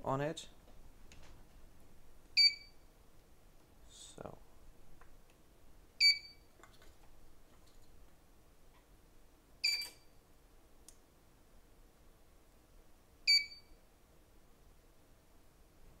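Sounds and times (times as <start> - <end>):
short high-pitched beeps: 2.4 - 2.8, 6.0 - 6.5, 9.6 - 10.1, 13.3 - 13.8.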